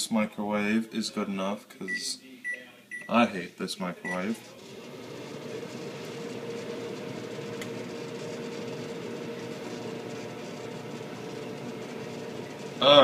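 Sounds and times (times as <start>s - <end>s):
microwave oven humming: 4.1s - 13.0s.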